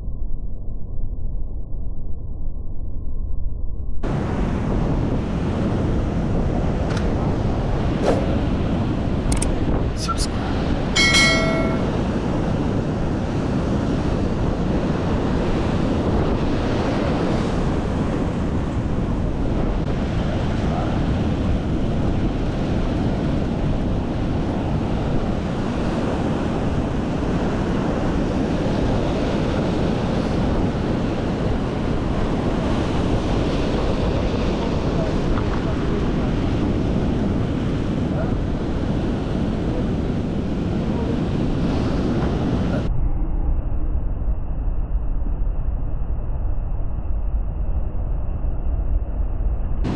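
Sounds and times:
wind buffeting microphone: 0:04.0 - 0:45.1, 0:47.4 - 0:49.9
short ringing tone: 0:11.0 - 0:12.0.

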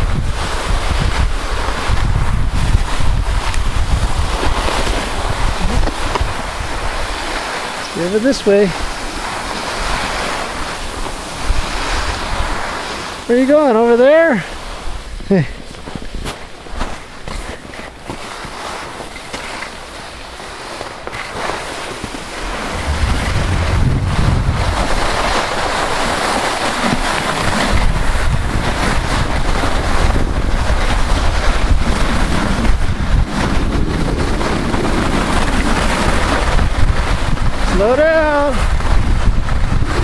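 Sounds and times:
wind buffeting microphone: 0:00.0 - 0:13.2, 0:22.2 - 0:40.0
skis sliding on packed snow: 0:00.1 - 0:40.0.

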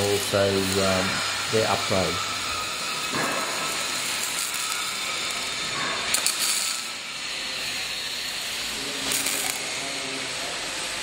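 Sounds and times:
steady hiss: 0:00.0 - 0:07.6.

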